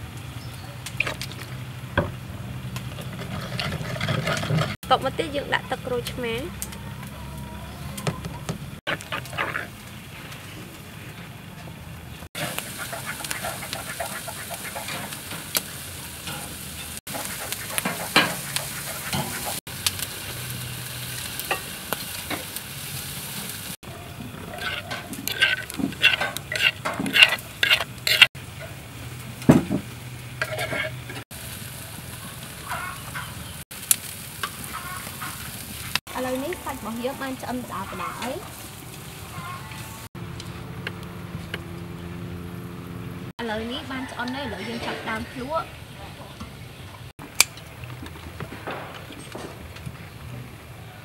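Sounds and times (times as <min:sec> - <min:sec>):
grill crackling: 0:00.0 - 0:45.9, 0:46.5 - 0:51.0
meat sizzling on a grill: 0:12.3 - 0:40.1.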